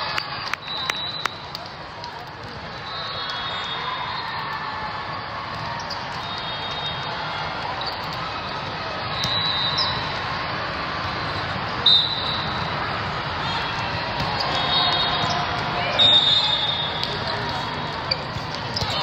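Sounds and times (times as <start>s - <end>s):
echoing murmur of crowd voices: 0.0s - 19.0s
referee whistles: 0.4s - 1.4s, 2.8s - 4.5s, 5.9s - 7.2s, 9.0s - 10.2s, 11.8s - 12.6s, 14.3s - 17.3s.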